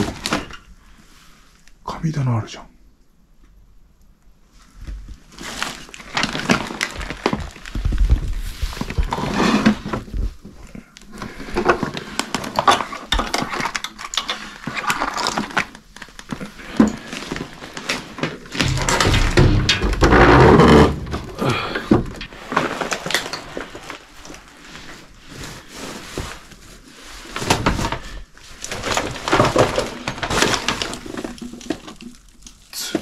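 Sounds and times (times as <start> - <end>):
objects knocking and clattering: 6.2 - 10.6, 11.4 - 24.0, 27.4 - 32.4.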